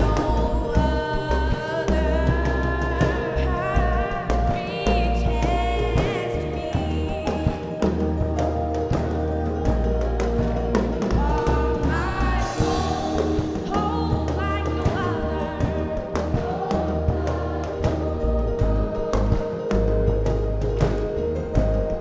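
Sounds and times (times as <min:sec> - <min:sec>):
bass line: 0:00.0 - 0:22.0
drum beat: 0:05.5 - 0:22.0
choir singing: 0:08.8 - 0:21.2.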